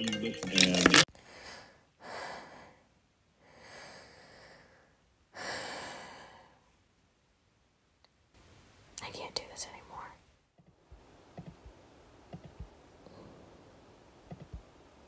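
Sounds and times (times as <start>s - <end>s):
person breathing: 1.1s - 6.8s, 13.0s - 13.7s.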